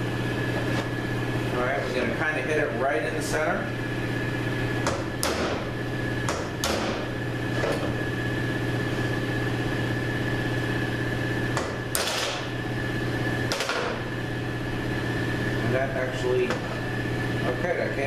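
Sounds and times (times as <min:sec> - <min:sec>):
steady hum: 0:00.0 - 0:18.0
hammer striking metal punch: 0:04.8 - 0:05.7, 0:06.3 - 0:07.1.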